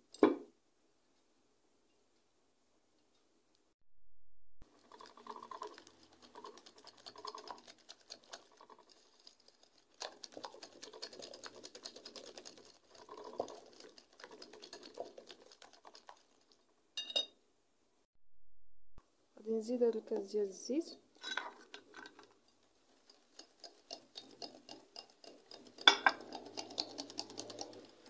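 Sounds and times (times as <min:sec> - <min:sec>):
whisk clicking against glass bowl: 0:04.9 - 0:16.6, 0:22.9 - 0:28.0.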